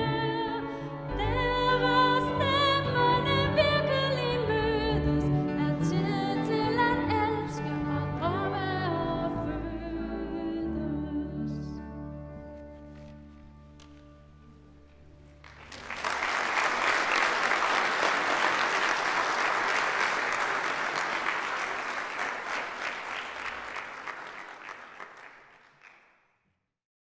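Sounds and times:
audience applauding: 15.4 - 26.2.

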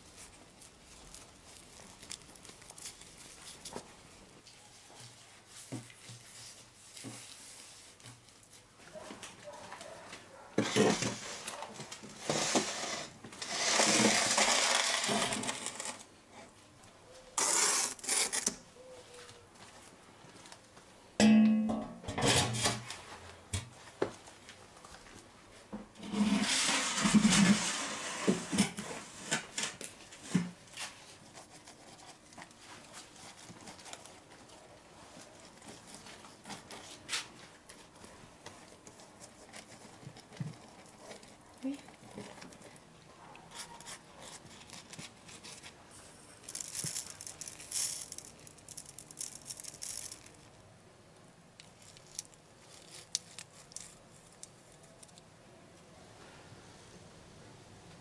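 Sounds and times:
metal tray scraping on brick: 12.2 - 16.0, 22.0 - 22.8, 26.0 - 29.4.

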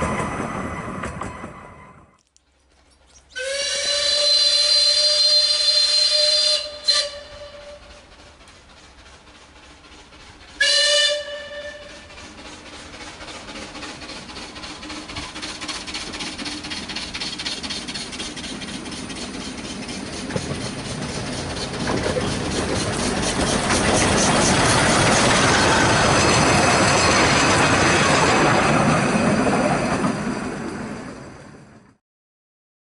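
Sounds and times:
steam locomotive exhaust beating: 0.0 - 31.2
train wheels rolling on rails: 0.0 - 32.0
high wheel squeal: 14.8 - 31.7.

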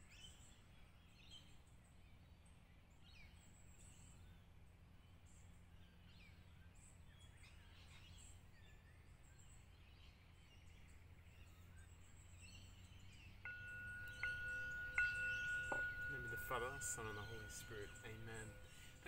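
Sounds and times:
faint birdsong: 0.0 - 19.0
singing bowl ringing: 12.8 - 19.0.

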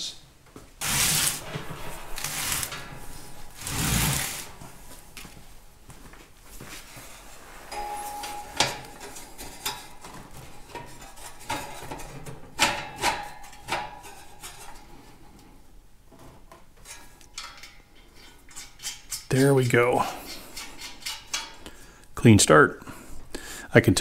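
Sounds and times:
short ringing tone: 7.7 - 9.0.

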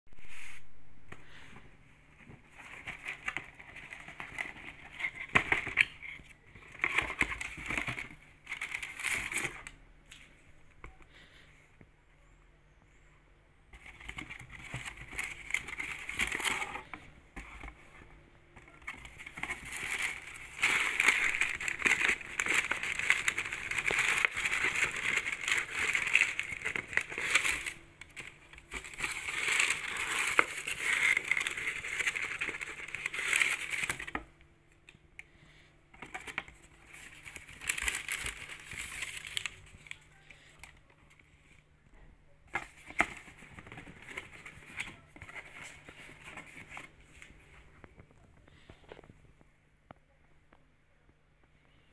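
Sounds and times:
paper and cardboard crinkling: 2.1 - 9.7, 13.7 - 34.3, 35.9 - 41.3, 42.5 - 49.2.

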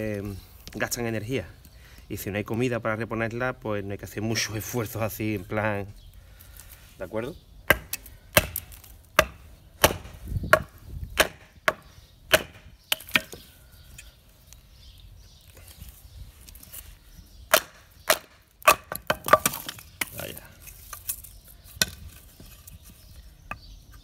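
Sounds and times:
knife chopping wood: 7.7 - 13.5, 17.5 - 20.3.

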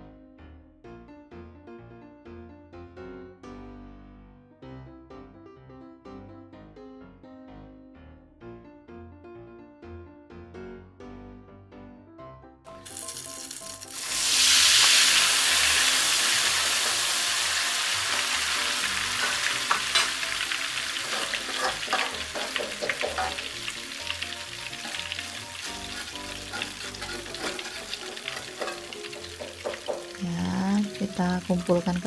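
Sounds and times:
batter sizzling in hot oil: 12.8 - 32.0
metal spatula scraping a wok: 15.1 - 23.6, 24.8 - 30.1.

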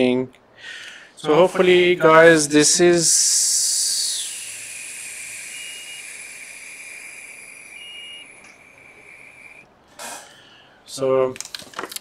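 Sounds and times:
flux hissing under soldering iron: 3.2 - 9.6
faint thin whistle: 3.7 - 9.6.

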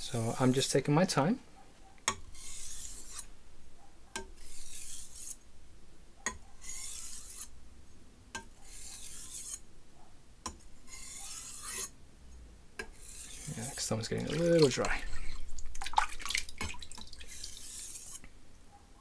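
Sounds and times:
knife stropping on whetstone: 0.1 - 0.8, 2.3 - 3.3, 4.2 - 5.4, 6.6 - 7.5, 8.6 - 9.6, 10.8 - 11.9, 12.8 - 15.5, 17.2 - 18.3.

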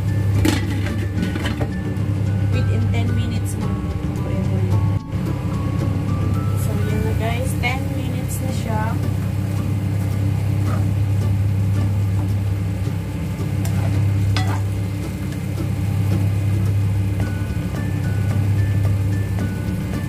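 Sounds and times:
steady low hum: 0.0 - 20.0
spatula scraping metal wok: 13.6 - 14.7.

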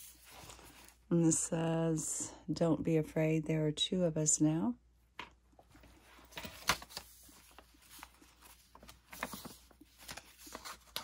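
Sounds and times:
paper pages rustling: 0.0 - 1.0, 5.7 - 11.0.

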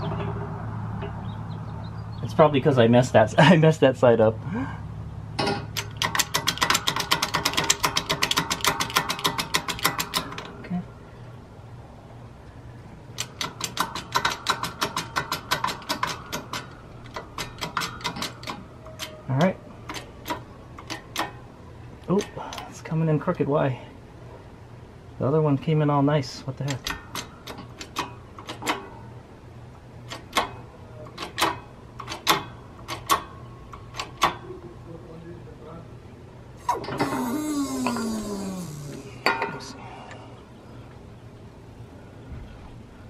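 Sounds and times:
metallic ratcheting clicks: 5.6 - 10.6, 13.1 - 21.4.

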